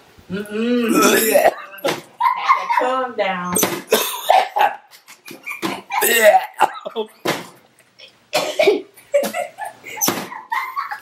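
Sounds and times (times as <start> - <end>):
man coughing and gagging: 0.9 - 2.0, 3.9 - 4.8, 5.9 - 7.1, 8.3 - 9.0.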